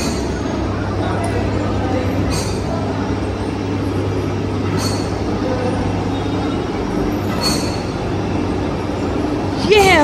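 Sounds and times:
low hum and rumble: 0.0 - 10.0.

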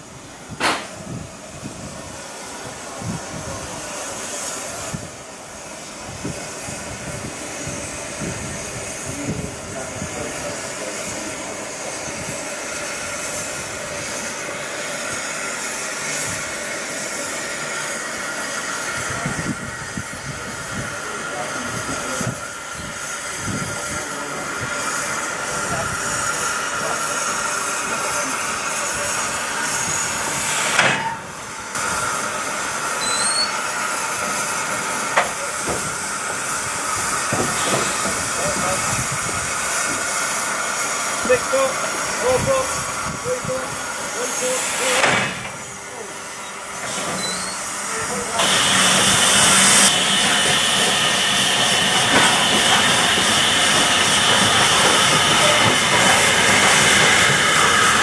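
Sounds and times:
steam hissing: 0.0 - 58.0
steam locomotive moving slowly: 0.0 - 58.0
sharp knock: 0.6 - 0.9.

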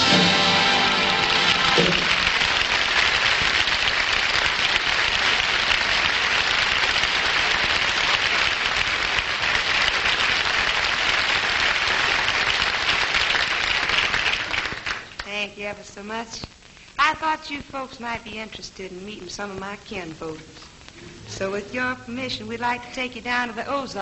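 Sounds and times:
orchestra final note: 0.0 - 2.4
audience applauding: 0.0 - 15.2.

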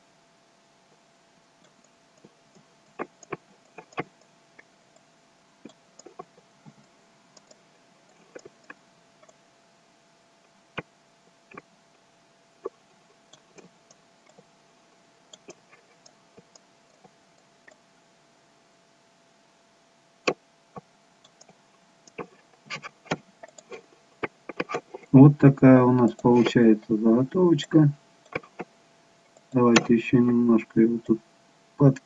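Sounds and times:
faint steady hum: 0.0 - 32.0
computer mouse clicks: 1.6 - 4.7, 5.6 - 9.4, 15.3 - 17.8, 20.2 - 25.1, 28.2 - 28.7, 29.3 - 29.9.

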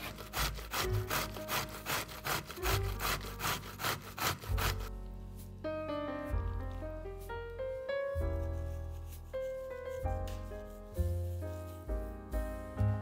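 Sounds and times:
vegetable rasping on a grater: 0.0 - 4.9.

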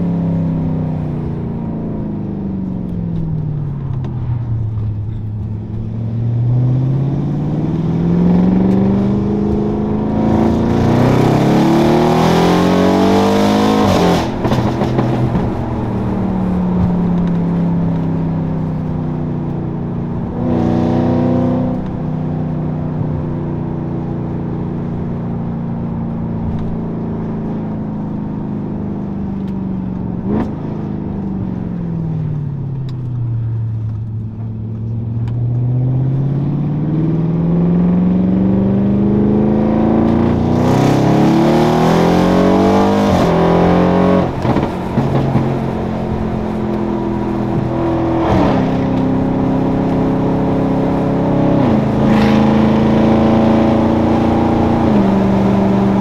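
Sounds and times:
car engine accelerating: 0.0 - 56.0
exhaust crack: 13.8 - 19.6, 44.2 - 50.0.

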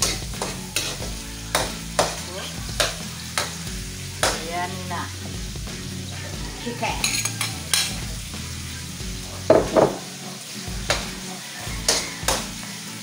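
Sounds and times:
food sizzling in a pan: 0.0 - 13.0
utensil scraping and knocking pan: 9.5 - 10.0.

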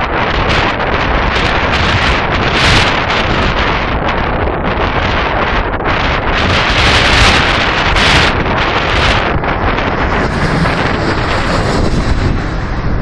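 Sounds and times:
wind buffeting microphone: 0.0 - 13.0
jet airliner engines roaring: 6.3 - 13.0
high engine whine: 9.0 - 13.0.

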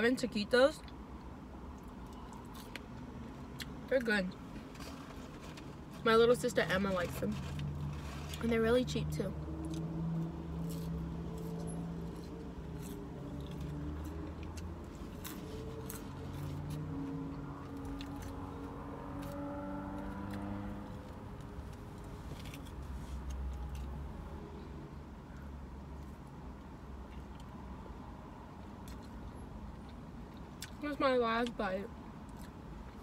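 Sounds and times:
low car interior hum: 0.0 - 33.0
fries being chewed: 1.7 - 3.0.

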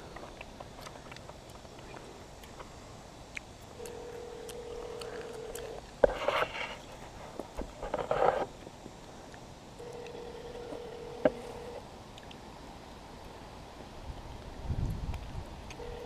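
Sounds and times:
phone ringback tone: 3.8 - 5.7, 9.8 - 11.8, 15.8 - 16.0.

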